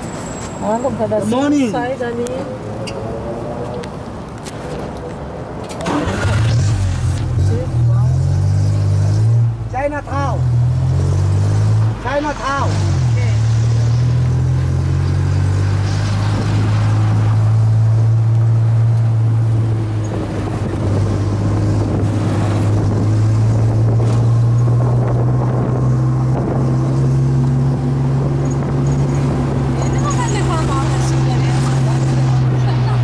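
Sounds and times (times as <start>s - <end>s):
road noise: 0.0s - 33.0s.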